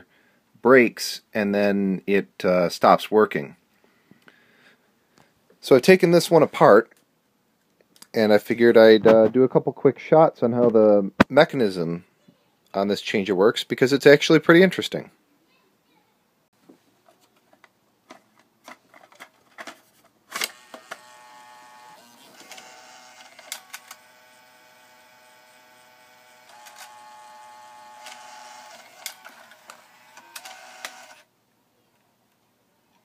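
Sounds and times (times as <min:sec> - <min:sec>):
small motor whining: 0:20.5 - 0:31.3.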